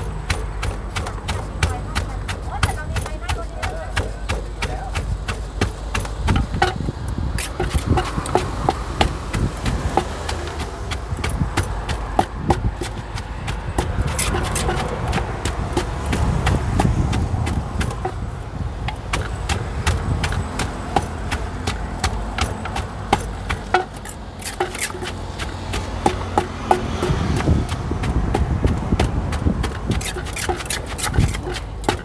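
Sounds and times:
steady low rumble: 0:00.0 - 0:24.4
pestle pounding in a mortar: 0:00.0 - 0:32.0.

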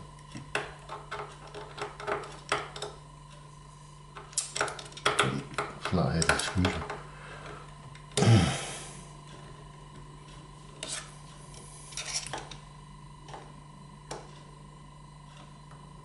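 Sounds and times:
low steady hum: 0:00.0 - 0:16.0
screwdriver scraping and clicking: 0:00.5 - 0:02.9, 0:11.9 - 0:12.6.

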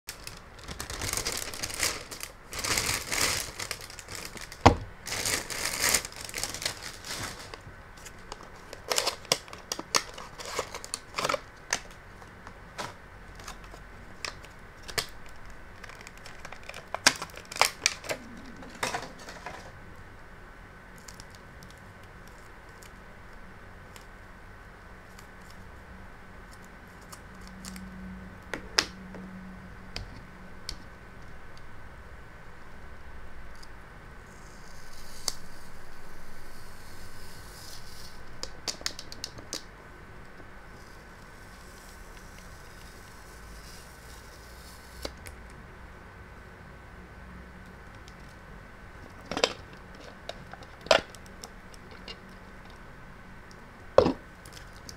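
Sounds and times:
packaging crinkling and tearing: 0:00.1 - 0:19.7, 0:49.0 - 0:52.8.

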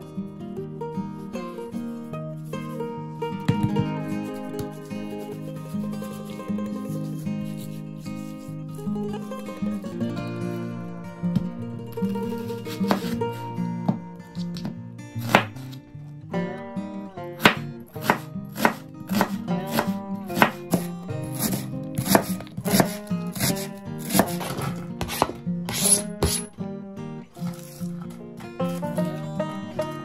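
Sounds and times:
background music: 0:00.0 - 0:30.0
knife chopping on cutting board: 0:12.4 - 0:13.2, 0:14.6 - 0:15.7, 0:17.4 - 0:26.5.

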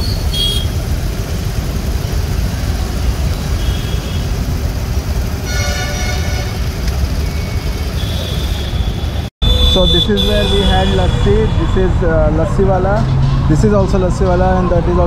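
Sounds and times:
vehicle horn: 0:00.0 - 0:00.8, 0:03.3 - 0:04.5, 0:05.4 - 0:11.7.

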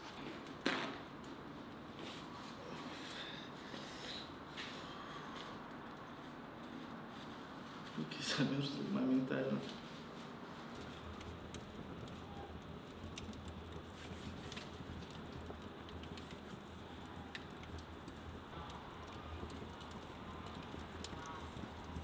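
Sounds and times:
log fire crackling and popping: 0:00.0 - 0:07.6, 0:08.2 - 0:22.0
fire low rumble: 0:00.0 - 0:22.0.

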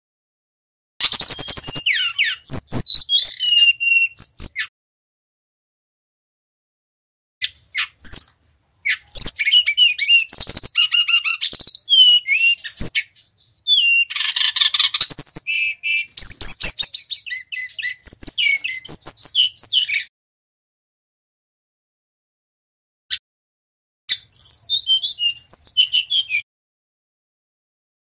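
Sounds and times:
bird singing whistles and trills: 0:01.0 - 0:04.7, 0:07.4 - 0:20.1, 0:24.1 - 0:26.4.

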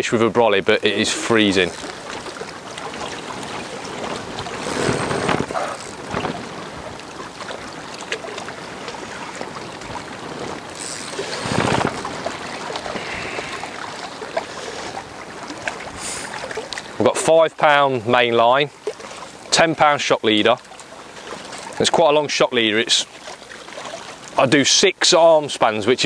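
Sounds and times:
water lapping at a bank: 0:00.0 - 0:26.0
wind on microphone: 0:01.7 - 0:16.7.

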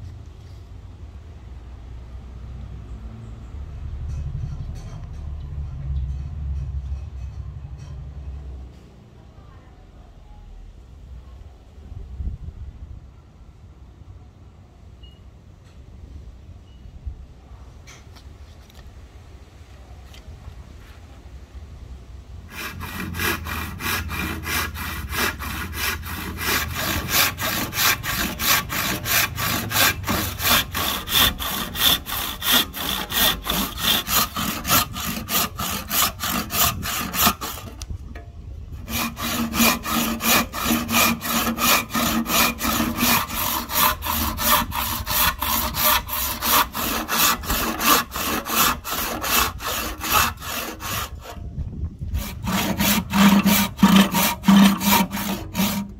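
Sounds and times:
handsaw cutting wood: 0:22.5 - 0:37.8, 0:38.8 - 0:51.4, 0:52.1 - 0:55.9.

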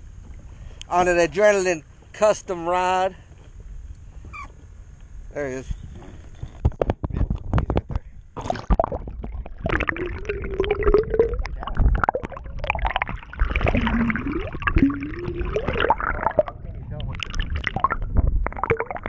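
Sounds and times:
muffled underwater gurgling: 0:07.0 - 0:19.0.

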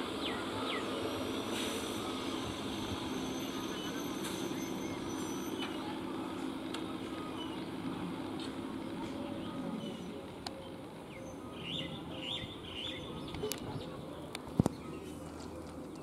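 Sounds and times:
train low steady hum: 0:00.0 - 0:16.0
bird chirping: 0:09.5 - 0:14.0.

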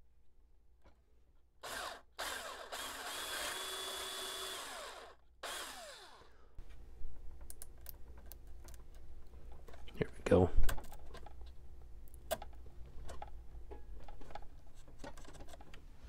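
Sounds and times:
power drill boring: 0:01.6 - 0:06.4.

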